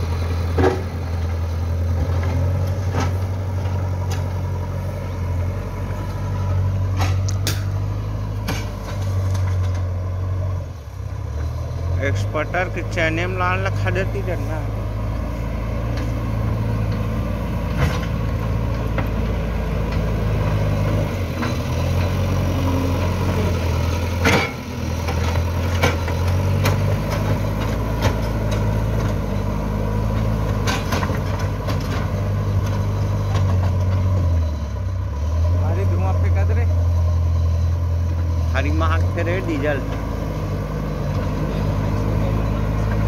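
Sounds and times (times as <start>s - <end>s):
diesel engine running: 0.0s - 43.0s.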